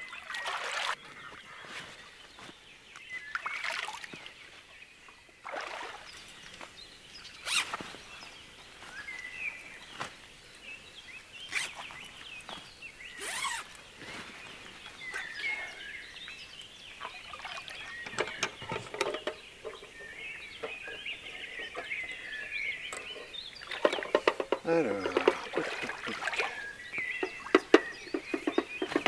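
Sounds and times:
small birds chirping: 0.0 - 29.0
rustles: 6.3 - 17.5.

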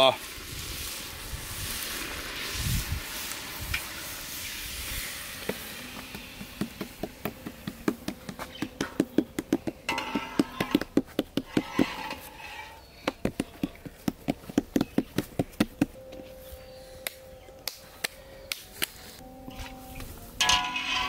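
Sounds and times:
hands patting dough on board: 6.4 - 11.7, 13.0 - 16.0.

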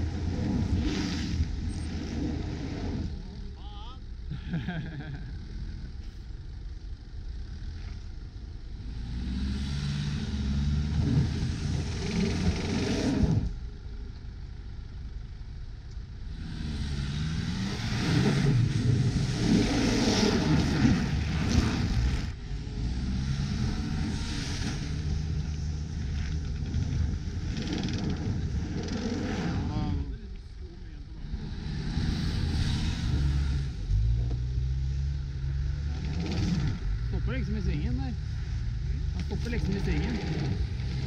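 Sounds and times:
engine revving under load: 0.0 - 3.4, 8.7 - 13.6, 16.2 - 30.2, 31.0 - 41.0
tyres churning snow: 8.8 - 13.5, 16.3 - 34.2, 35.5 - 41.0.

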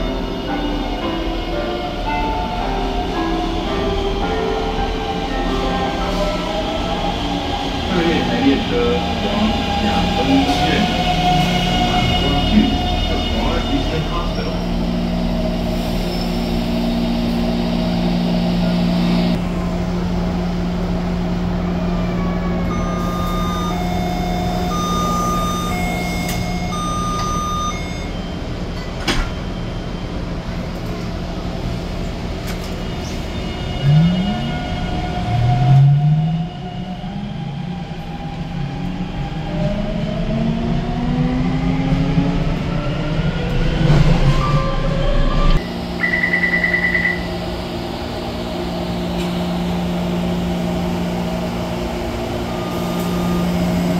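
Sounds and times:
short pulsing beep: 22.7 - 28.1, 46.0 - 47.4
three-note door chime: 24.6 - 28.1.

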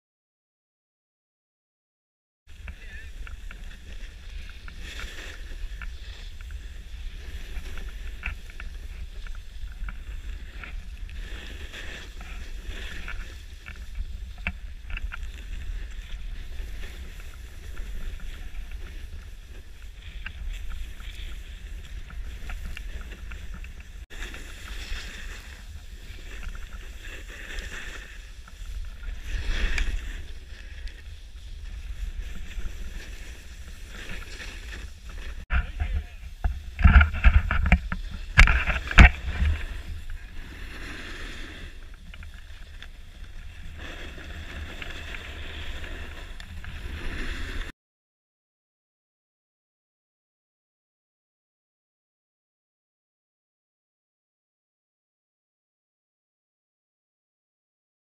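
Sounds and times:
skis sliding over snow: 2.5 - 47.7
wind rumbling on microphone: 2.5 - 47.7.

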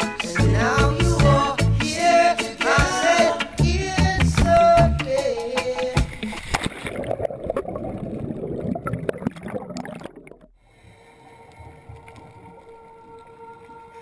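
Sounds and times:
churning gurgling water and bubbles: 6.0 - 13.8.

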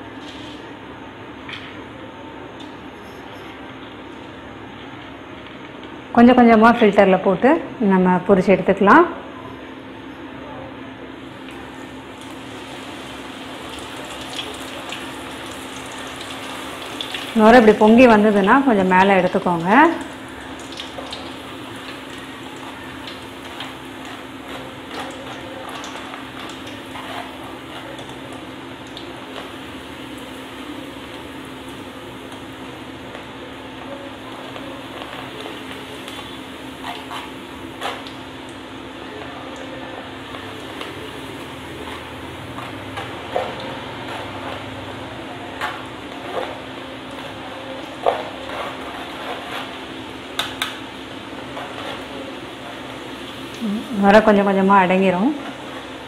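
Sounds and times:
food deep-frying in oil: 11.2 - 56.0.

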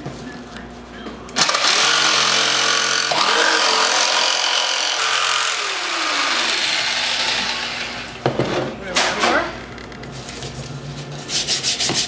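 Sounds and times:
jigsaw cutting cardboard: 1.4 - 8.1.

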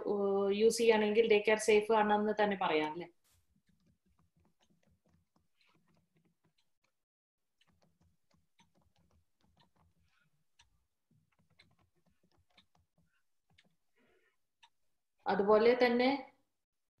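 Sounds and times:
faint rapid clicking: 7.6 - 14.8.

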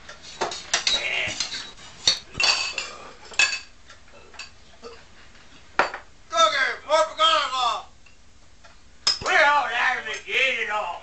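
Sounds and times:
spoons clinking against bowls: 0.4 - 3.7.

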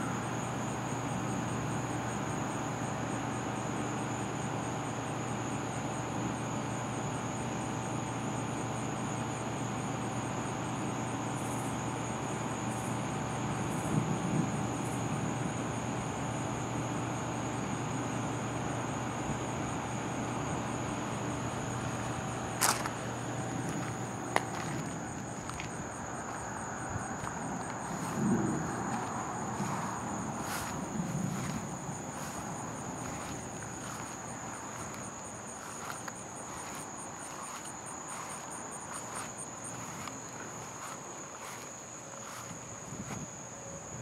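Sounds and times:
crickets chirping: 0.0 - 44.0
insects buzzing: 0.0 - 44.0.

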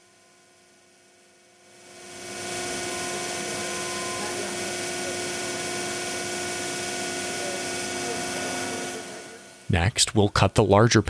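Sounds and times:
router spindle whine: 1.7 - 9.7.

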